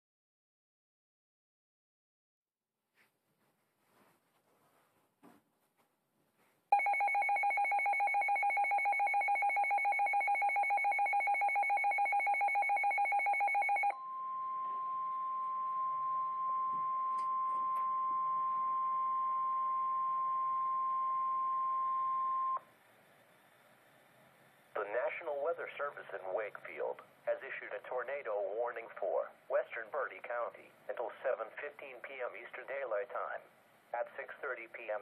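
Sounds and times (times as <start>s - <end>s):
steady warning alarm tone: 6.7s - 22.6s
two-pitch electronic beeping: 6.8s - 22.6s
faint radio static: 14.5s - 35.0s.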